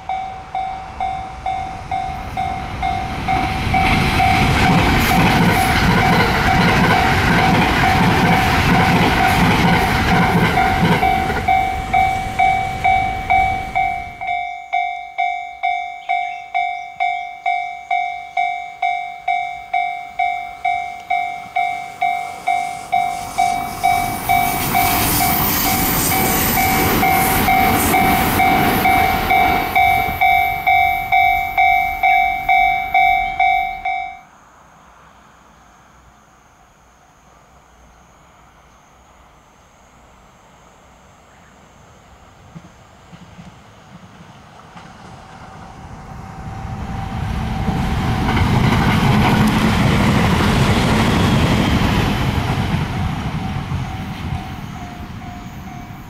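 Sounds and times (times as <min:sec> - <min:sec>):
level-crossing alarm dinging: 0:00.0 - 0:34.3, 0:46.1 - 0:49.0, 0:50.5 - 0:56.0
train passing: 0:00.0 - 0:56.0.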